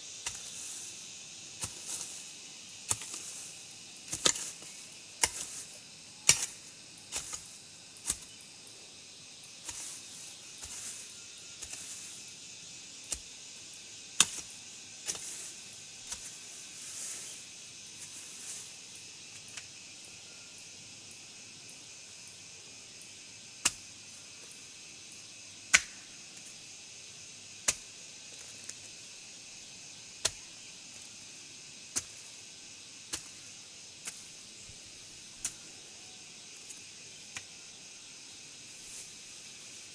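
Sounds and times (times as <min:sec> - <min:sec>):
insect drone: 0:00.0 - 0:39.9
machete chopping brush: 0:01.6 - 0:08.4, 0:09.6 - 0:12.2, 0:14.2 - 0:17.4, 0:25.7 - 0:26.1, 0:27.6 - 0:28.7, 0:30.2 - 0:30.5, 0:31.9 - 0:32.3, 0:33.1 - 0:34.4.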